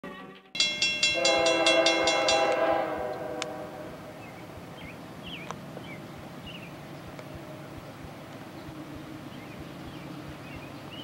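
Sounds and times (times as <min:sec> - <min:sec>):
locomotive air horn chord: 0:00.2 - 0:04.2.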